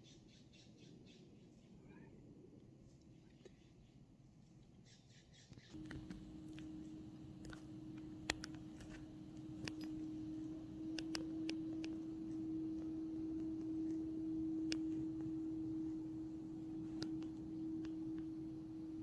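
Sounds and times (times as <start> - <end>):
steady low hum: 5.7 - 19.0
light clicks and ticks: 5.8 - 14.1.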